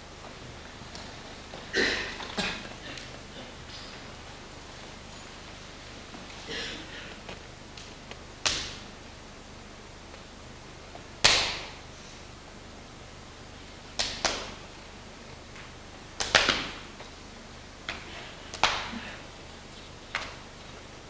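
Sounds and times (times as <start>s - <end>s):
hand slaps echoing: 7.8s - 8.9s, 11.2s - 11.8s, 14.0s - 14.6s, 16.2s - 16.9s, 17.9s - 19.2s.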